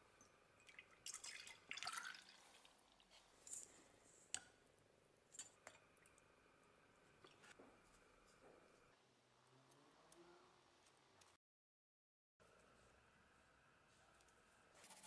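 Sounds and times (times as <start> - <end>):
liquid splashing into glass jar: 0.6 - 2.7.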